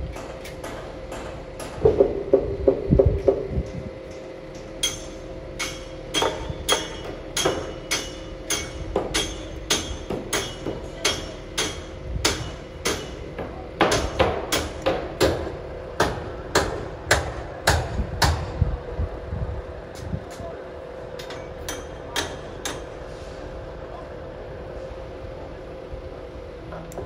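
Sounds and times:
steady machine hum: 0.0s - 27.0s.

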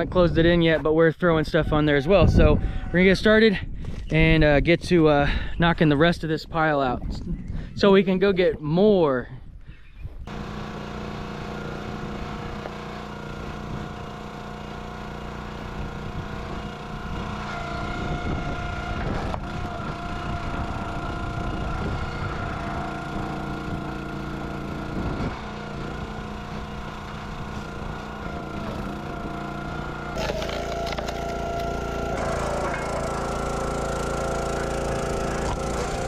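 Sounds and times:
log splitter engine running: 10.3s - 36.0s.

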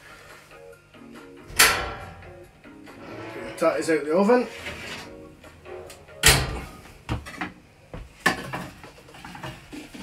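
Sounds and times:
metal oven tray knocks and clanks: 1.5s - 2.5s.

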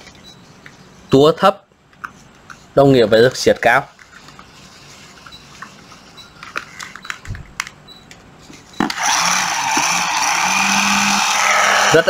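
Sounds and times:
cordless impact tool whirring: 8.8s - 12.0s.

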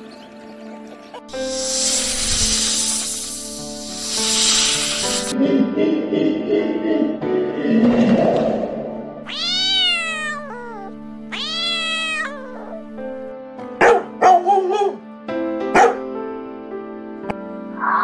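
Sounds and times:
background music: 0.0s - 18.0s
cat meowing: 9.3s - 13.0s
dog barking: 13.8s - 15.0s, 15.7s - 16.1s.

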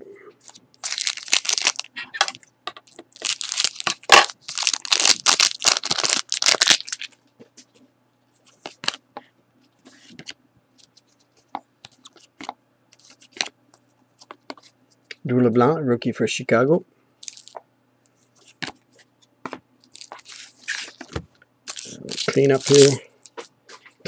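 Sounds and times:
foil wrapper tearing and crinkling: 0.8s - 1.9s, 2.9s - 7.1s, 19.9s - 21.0s, 21.7s - 23.0s
cards rustling and clicking: 19.5s - 24.0s.

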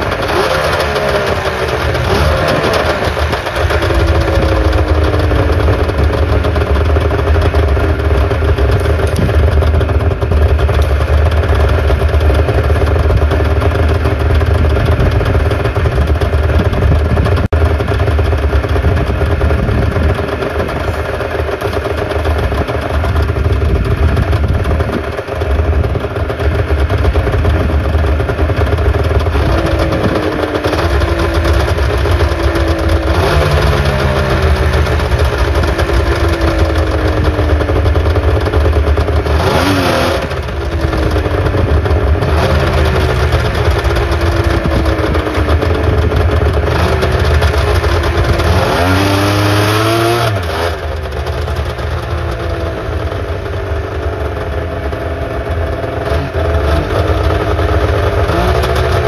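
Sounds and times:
snowmobile engine revving: 0.0s - 15.7s, 26.8s - 53.2s, 54.2s - 59.0s.

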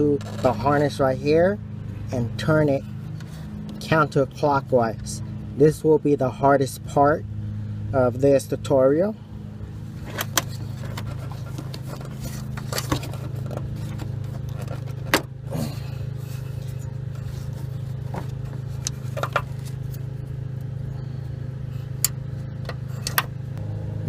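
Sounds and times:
low hum: 0.0s - 24.0s.

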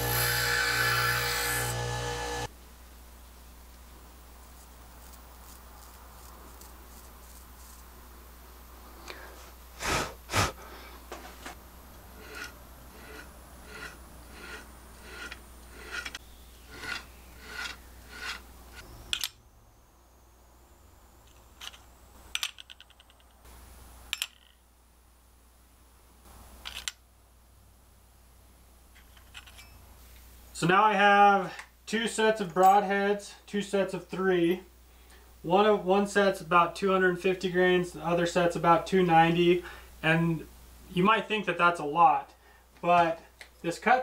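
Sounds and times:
blade scraping hair off skin: 12.2s - 18.8s.

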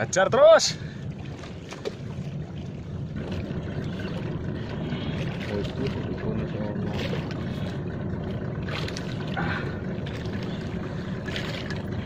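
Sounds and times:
wind and water rumble: 0.0s - 12.0s
faint knocks or splashes: 1.2s - 12.0s.

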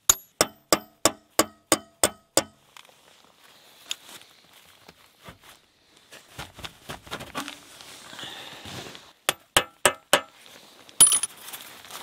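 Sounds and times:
handling and scuffing noises: 2.6s - 9.2s, 10.3s - 12.0s
metal clinks: 11.0s - 11.4s.

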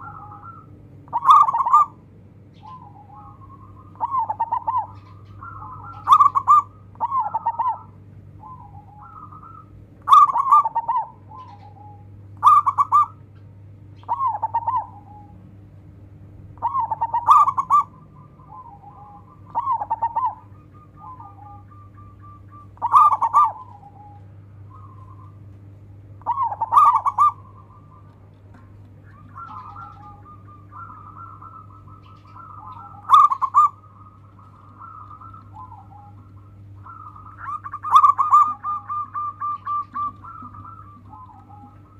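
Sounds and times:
dove cooing: 0.0s - 15.7s, 16.3s - 41.9s
steady low hum: 0.0s - 41.9s
soft trilled coos: 26.2s - 41.9s.

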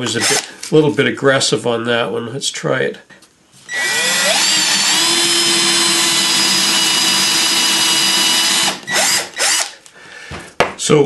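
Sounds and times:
electric drill boring into wood: 3.7s - 9.8s.

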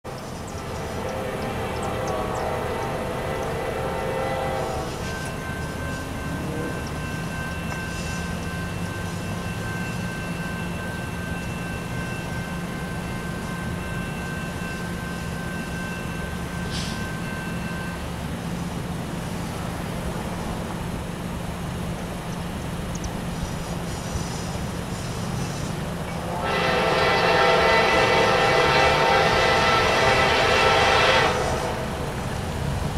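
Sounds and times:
diesel locomotive drone: 0.0s - 32.9s
locomotive air horn: 0.5s - 5.3s, 26.2s - 32.2s.

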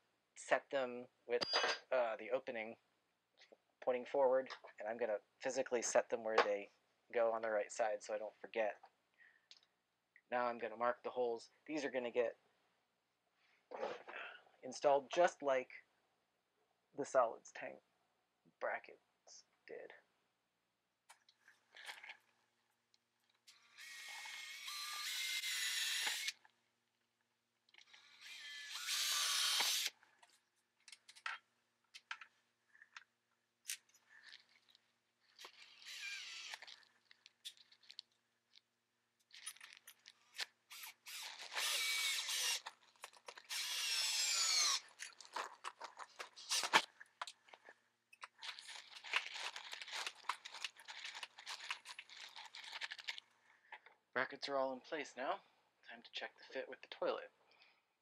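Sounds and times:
cordless drill running: 23.6s - 26.4s, 28.0s - 29.9s, 35.8s - 36.6s, 40.7s - 42.7s, 43.5s - 44.8s.

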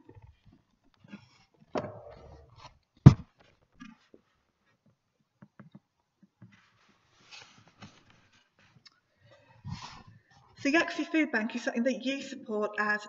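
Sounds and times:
loud thump: 1.8s - 2.4s, 3.1s - 3.3s.

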